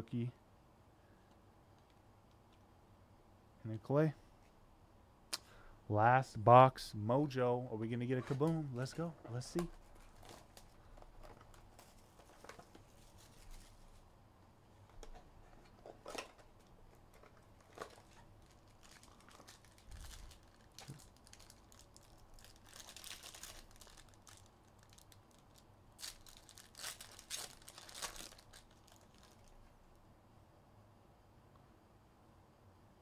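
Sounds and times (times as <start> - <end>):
foil wrapper crinkling and tearing: 16.9 - 29.6.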